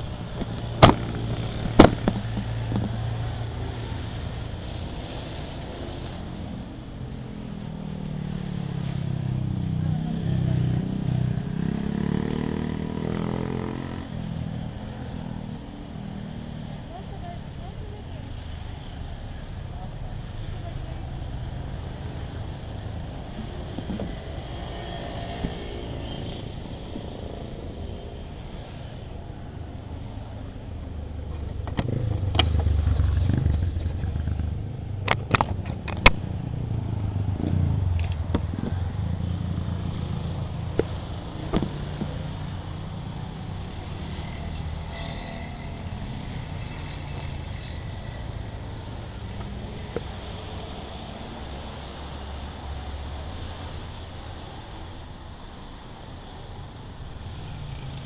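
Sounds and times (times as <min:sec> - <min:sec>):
tyres hissing on wet road: 0:00.0 - 0:34.9, 0:36.2 - 0:58.0
camera handling knocks: 0:00.4 - 0:03.0, 0:41.5 - 0:41.8.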